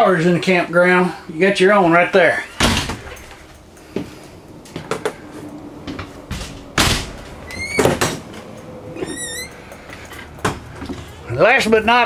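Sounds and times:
doors opening and shutting: 5.9s - 11.1s
short rising squeak: 9.0s - 9.6s.

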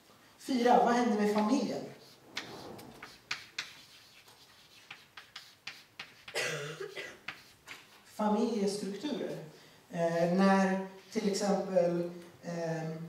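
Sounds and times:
chalk tapping and scratching: 1.2s - 8.2s, 11.0s - 11.4s
louder scrape: 2.0s - 4.8s.

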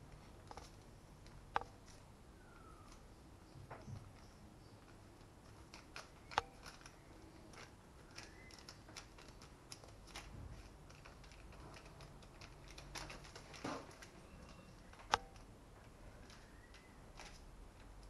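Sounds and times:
baking parchment rustling: 3.9s - 15.4s.

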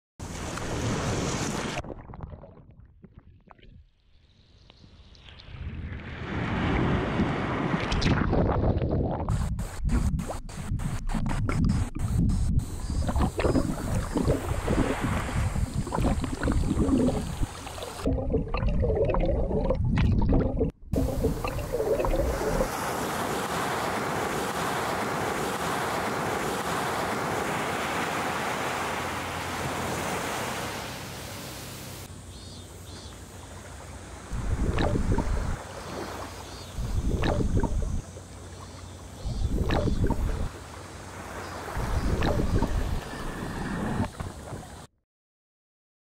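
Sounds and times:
surf washing on shore: 12.8s - 18.1s, 21.0s - 38.8s, 39.8s - 44.9s.

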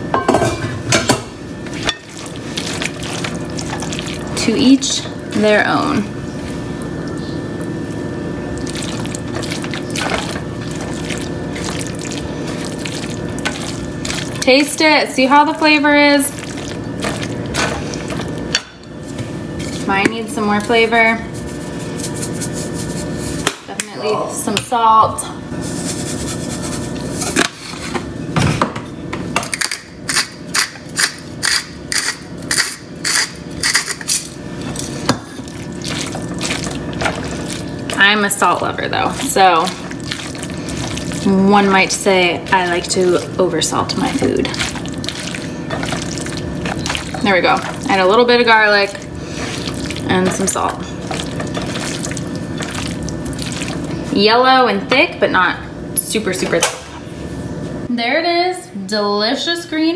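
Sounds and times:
steady background hum: 0.0s - 59.9s
spatula stirring thick sauce: 34.7s - 43.4s, 44.0s - 54.1s.

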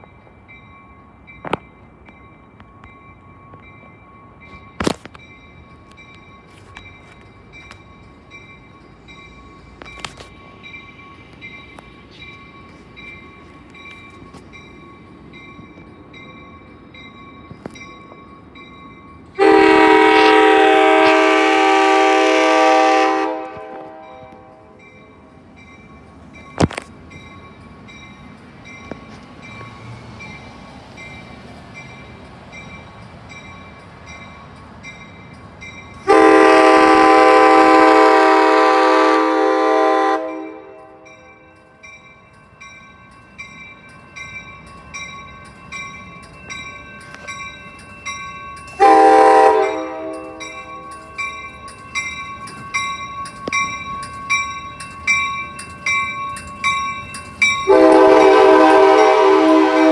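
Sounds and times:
crossing bell pulsing: 0.0s - 22.9s, 23.8s - 37.5s, 40.4s - 59.3s
train horn blasts: 19.4s - 24.8s, 36.0s - 41.3s, 48.8s - 50.6s, 57.7s - 59.9s.

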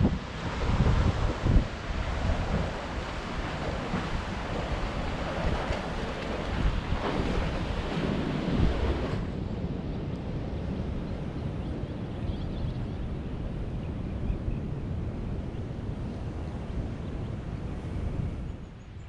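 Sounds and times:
surf washing on beach: 0.0s - 11.3s
wind buffeting microphone: 0.0s - 19.0s.

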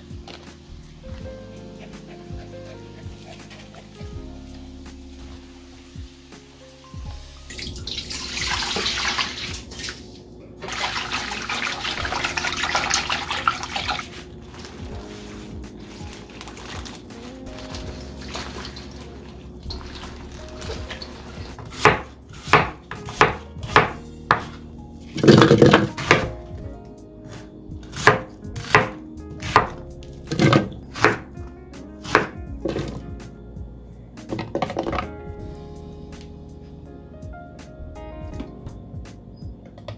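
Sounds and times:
knife chopping on cutting board: 20.6s - 24.6s, 25.2s - 26.3s, 27.9s - 31.2s, 32.0s - 33.0s.

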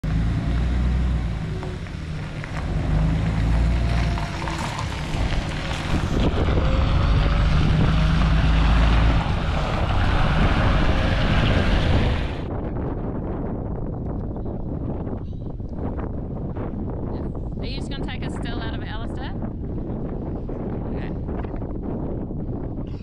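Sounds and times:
tyres on gravel: 0.0s - 12.4s
bus diesel engine rumble: 0.0s - 12.9s.

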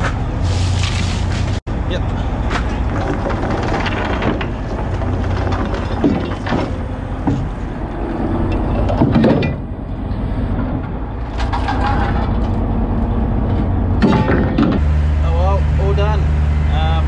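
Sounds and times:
wind: 0.0s - 17.0s
boat engine running: 1.4s - 17.0s
anchor chain knocking and scraping: 2.7s - 9.6s.

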